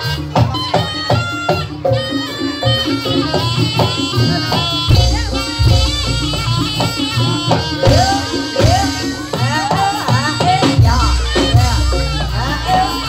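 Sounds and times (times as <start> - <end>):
deep drum beats: 3.1 - 13.0
melody with sliding notes: 4.9 - 9.6.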